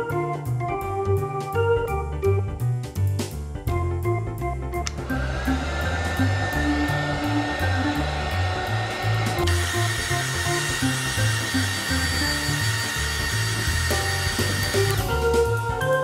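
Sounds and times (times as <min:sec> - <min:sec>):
background music: 0:00.0 - 0:16.0
high whine: 0:04.9 - 0:14.9
heat gun blowing: 0:04.9 - 0:15.2.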